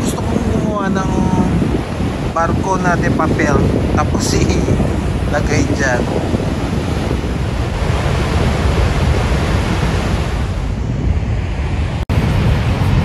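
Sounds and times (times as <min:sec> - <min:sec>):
wind on microphone: 0:00.0 - 0:13.0
river water rushing: 0:04.4 - 0:10.7.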